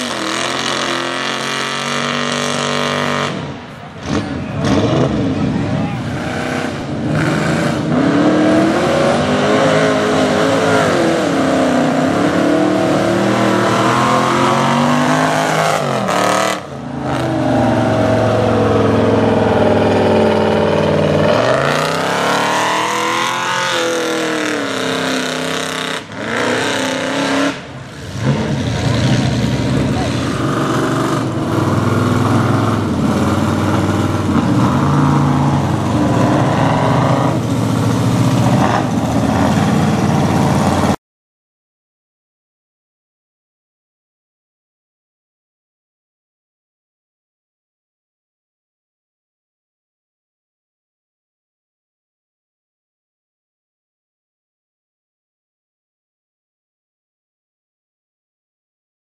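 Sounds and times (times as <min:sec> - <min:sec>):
truck engine revving: 0:00.0 - 0:41.0.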